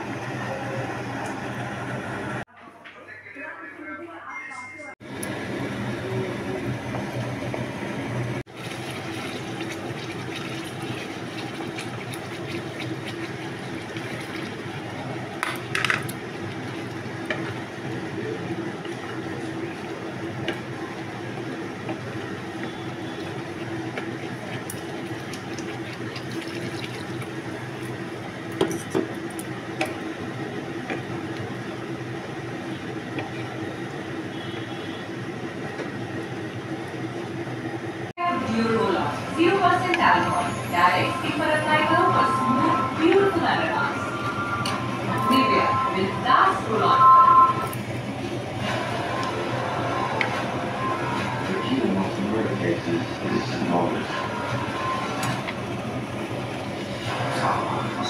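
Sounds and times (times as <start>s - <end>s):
curry bubbling in pan: 8.5s - 37.5s.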